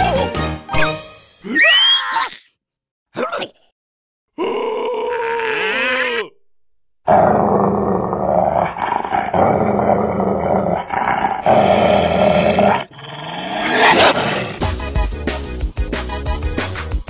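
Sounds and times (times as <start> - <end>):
cartoon beast growling: 4.4 - 6.4, 7.0 - 14.7.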